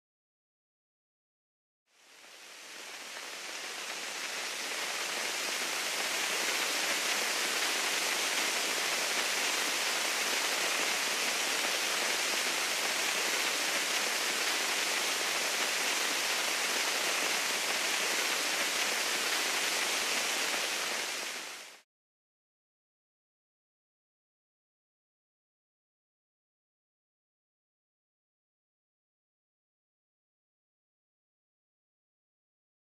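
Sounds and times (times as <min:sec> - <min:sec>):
steady hiss of falling rain: 0:01.9 - 0:21.8.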